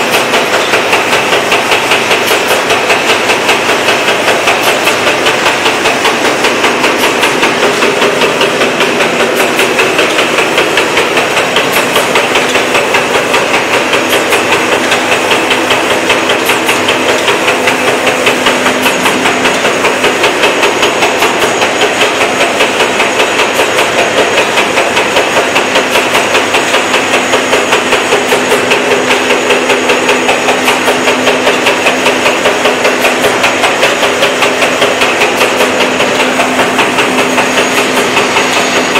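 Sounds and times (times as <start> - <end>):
mechanical clatter of knocks: 0.0 - 38.9.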